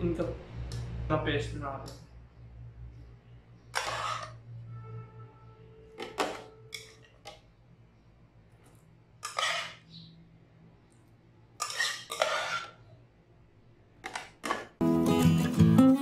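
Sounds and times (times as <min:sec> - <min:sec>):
spoon scraping bowl: 0:03.7 - 0:04.4, 0:09.2 - 0:09.9, 0:11.6 - 0:12.9
metal spoon clinking on cookware: 0:06.0 - 0:07.4, 0:09.2 - 0:09.8, 0:11.6 - 0:12.8.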